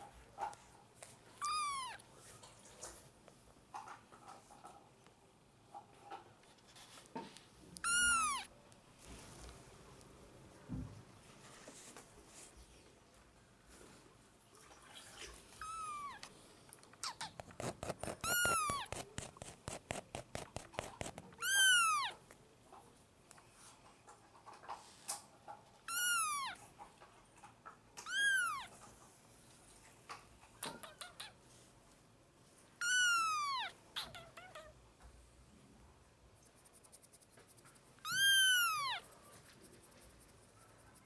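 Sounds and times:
kitten meowing: 0:01.4 - 0:02.0, 0:07.8 - 0:08.5, 0:15.6 - 0:16.2, 0:18.1 - 0:18.9, 0:21.3 - 0:22.2, 0:25.9 - 0:26.6, 0:28.0 - 0:28.7, 0:32.8 - 0:34.7, 0:38.0 - 0:39.1.

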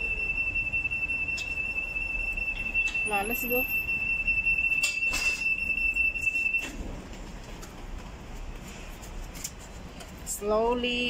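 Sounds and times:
high-pitched buzzer tone: 0:00.0 - 0:06.7.

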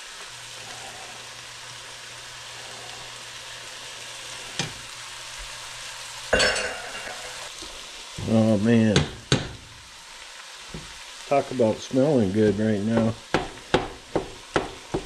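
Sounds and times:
food sizzling in frying pan: 0:00.0 - 0:15.0.

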